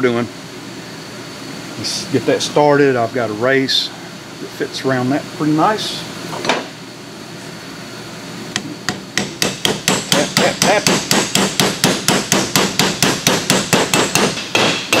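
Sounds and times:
hammer tapping on metal: 8.6s - 15.0s.

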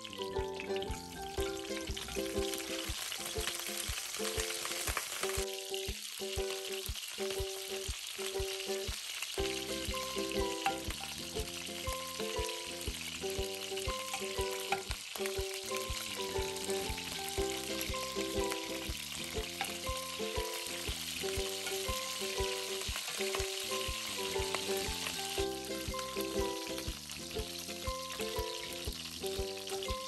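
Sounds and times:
background music with steady beat: 0.0s - 30.0s
vegetables sizzling in hot oil: 0.0s - 30.0s
metal spatula stirring in pan: 19.2s - 25.3s.

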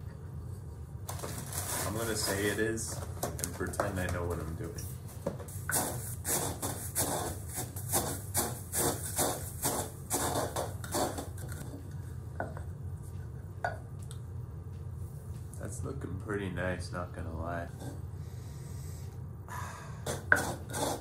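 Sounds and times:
pestle grinding cereal in mortar: 1.1s - 4.8s, 5.5s - 12.6s, 20.0s - 21.0s.

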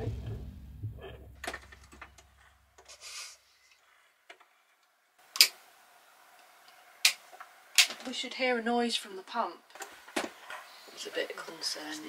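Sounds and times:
background music: 0.0s - 2.1s
brief hiss: 2.9s - 3.5s.

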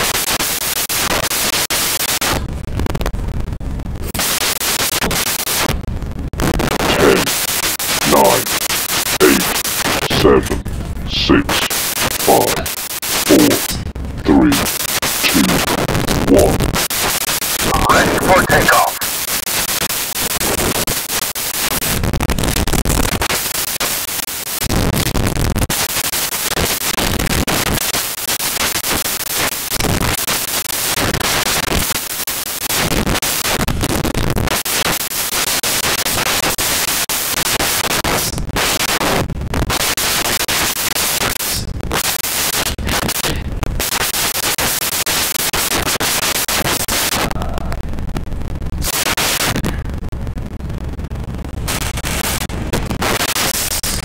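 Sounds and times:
loud static-like rushing noise: 6.4s - 29.2s.

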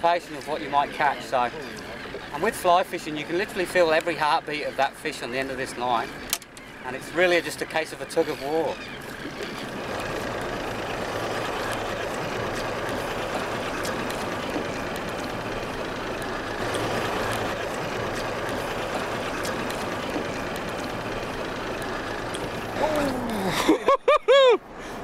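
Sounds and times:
boat engine idling: 0.0s - 24.1s
hiss of wind and water: 9.3s - 23.8s
faint clicks: 19.3s - 23.4s.

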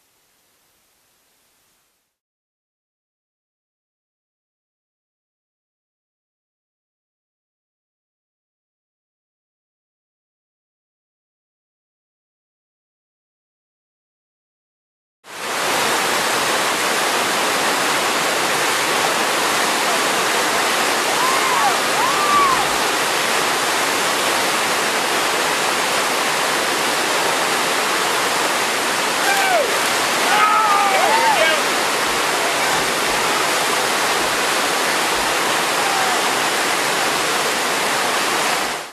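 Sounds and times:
roar of rapids: 15.3s - 38.9s.

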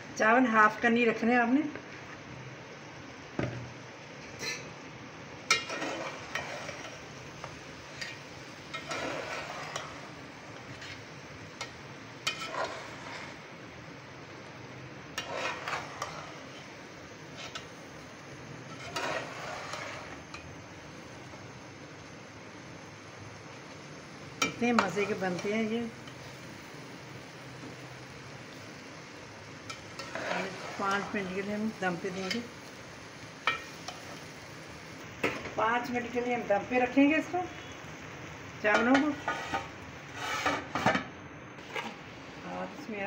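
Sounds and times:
spoon scraping pot: 5.5s - 7.0s, 8.0s - 10.0s, 11.6s - 13.4s, 15.2s - 17.7s, 18.7s - 20.4s, 29.7s - 31.2s, 38.8s - 41.0s, 41.6s - 42.0s.

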